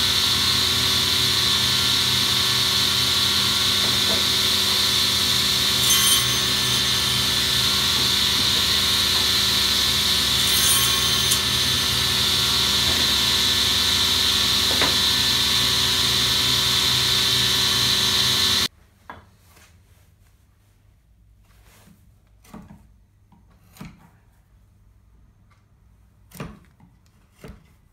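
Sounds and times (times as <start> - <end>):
panel saw cutting wood: 0.0 - 18.7.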